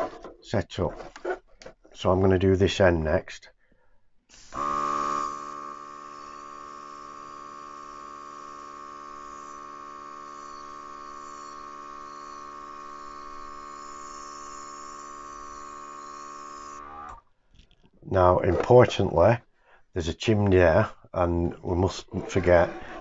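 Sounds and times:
airbrush compressor humming: 4.3s - 17.2s.

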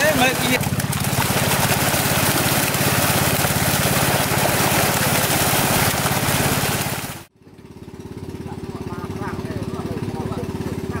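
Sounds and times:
fish splashing at water surface: 0.0s - 7.3s
small engine running: 0.0s - 11.0s.

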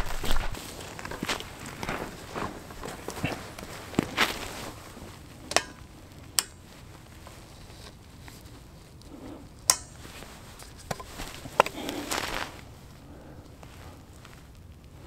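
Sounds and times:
faint scuffing: 0.0s - 5.2s, 10.0s - 13.0s
sharp clicks and light knocks: 5.4s - 12.0s.

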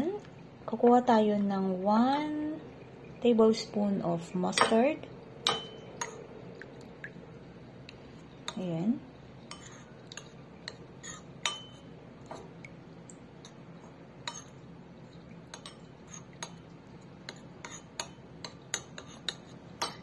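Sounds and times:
metal spoon clinking ceramic bowl: 5.4s - 6.2s, 11.4s - 11.8s.

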